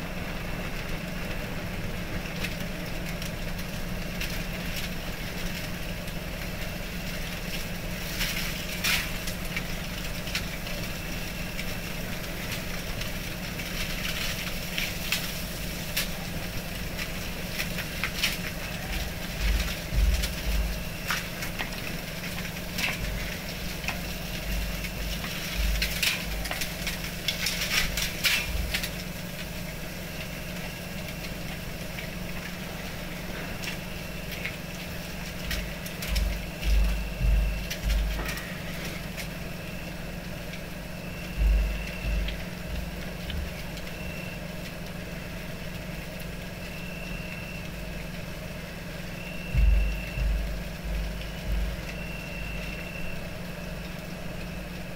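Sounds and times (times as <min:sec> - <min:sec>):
burning canvas crackling: 0:00.0 - 0:54.9
steady low hum: 0:00.0 - 0:54.9
low thumps: 0:19.4 - 0:20.8, 0:36.0 - 0:38.4, 0:41.4 - 0:43.5, 0:49.5 - 0:51.8.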